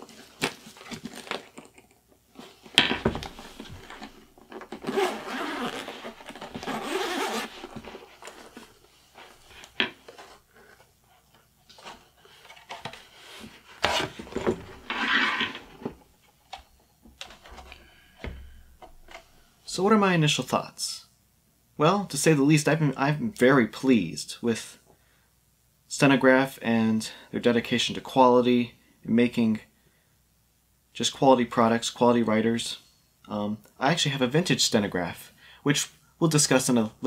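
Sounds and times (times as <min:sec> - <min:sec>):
rustling and scraping: 0:00.0 - 0:19.5.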